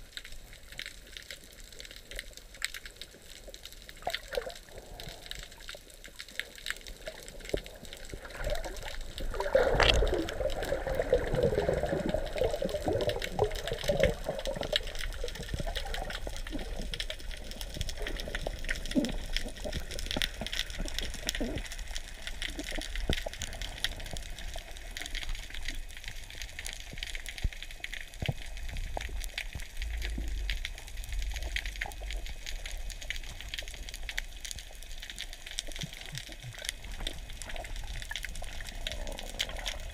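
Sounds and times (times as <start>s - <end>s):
crackling clicks: 0.0s - 39.9s
underwater rush of water: 0.0s - 39.9s
water gurgling and bubbling: 6.9s - 24.9s.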